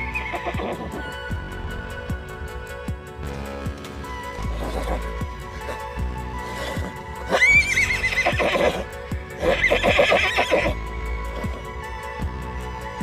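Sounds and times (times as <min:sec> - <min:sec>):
horse whinnying: 0:00.0 - 0:01.2, 0:04.4 - 0:11.7
background music with steady beat: 0:00.0 - 0:13.0.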